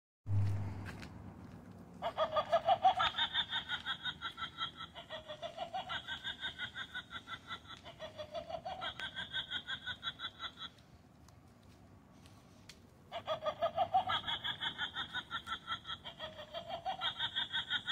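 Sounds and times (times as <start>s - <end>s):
recorded witch cackle: 2.0s - 11.0s, 13.1s - 17.9s.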